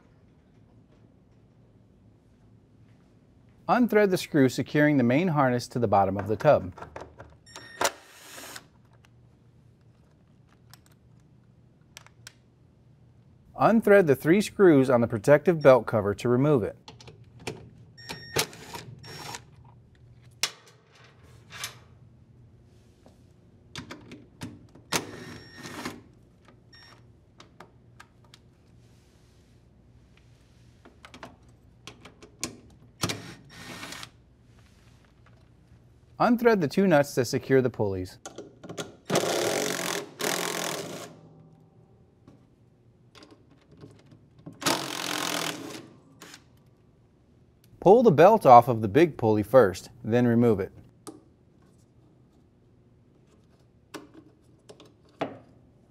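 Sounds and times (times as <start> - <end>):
power screwdriver whirring: 7.9 - 8.7
impact driver bursts: 39.1 - 41.2, 44.6 - 46.4.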